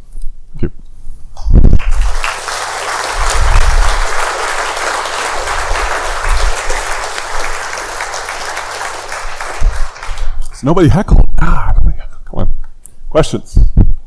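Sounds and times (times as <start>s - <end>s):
audience applauding: 1.8s - 10.6s.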